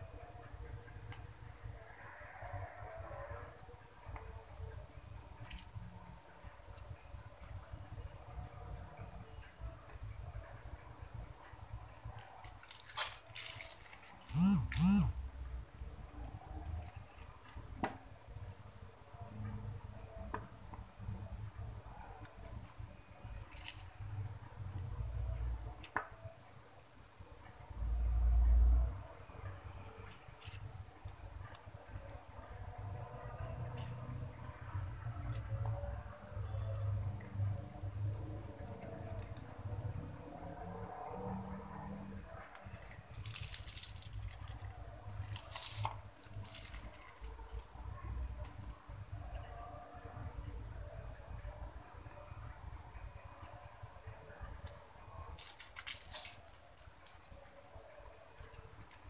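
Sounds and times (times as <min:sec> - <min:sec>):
plastic bag rustling: 0:12.6 - 0:14.4
plastic piping bag crinkling: 0:12.6 - 0:14.4, 0:42.7 - 0:47.6, 0:55.3 - 0:57.3.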